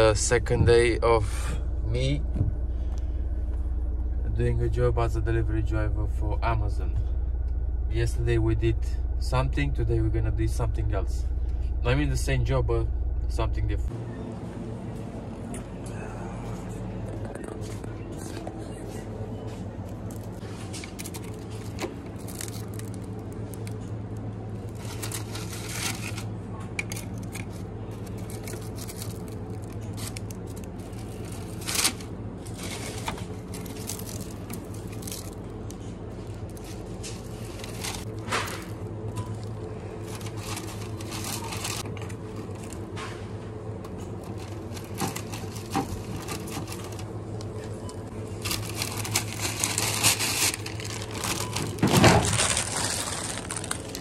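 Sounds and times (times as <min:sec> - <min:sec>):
low hum: 0:00.0 - 0:54.0
paper bag rustling: 0:19.8 - 0:43.0, 0:44.0 - 0:54.0.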